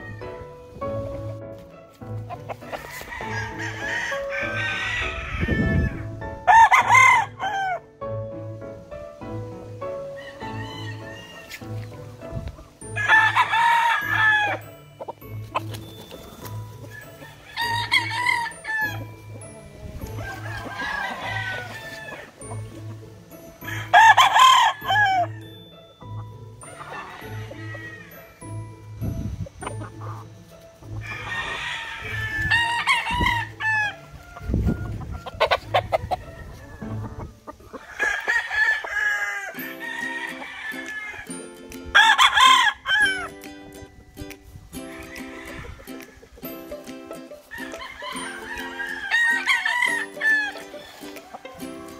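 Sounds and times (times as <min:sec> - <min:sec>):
rooster crowing: 0:02.7 - 0:07.8, 0:10.2 - 0:11.6, 0:13.0 - 0:14.6, 0:16.9 - 0:19.0, 0:20.1 - 0:22.4, 0:23.6 - 0:25.4, 0:26.7 - 0:28.3, 0:31.0 - 0:41.3, 0:42.0 - 0:43.3, 0:47.5 - 0:51.5
background music with beat: 0:05.9 - 0:51.9.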